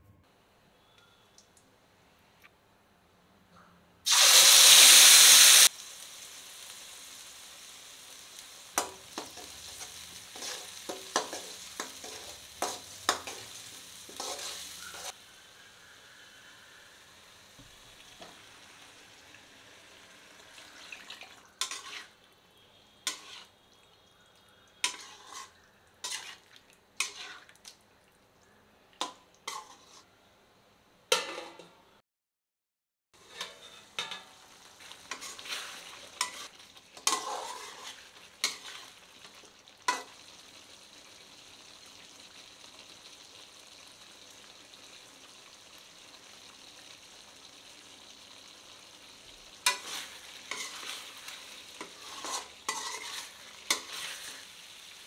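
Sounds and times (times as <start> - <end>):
food frying in hot oil: 4.1 - 27.8, 33.2 - 55.0
utensil stirring against pan: 8.8 - 15.2, 21.6 - 22.2, 23.0 - 23.6, 24.8 - 27.7, 29.0 - 30.1, 33.2 - 40.5, 49.6 - 55.0.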